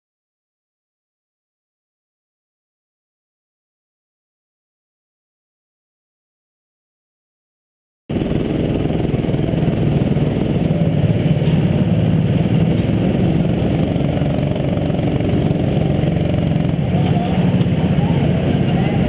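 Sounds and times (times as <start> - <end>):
go-kart engine running at low revs: 8.1 - 19.0.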